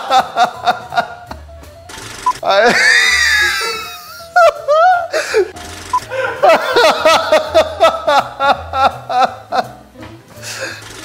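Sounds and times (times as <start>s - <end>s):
man laughing hard: 0.0s - 1.2s, 2.4s - 9.7s.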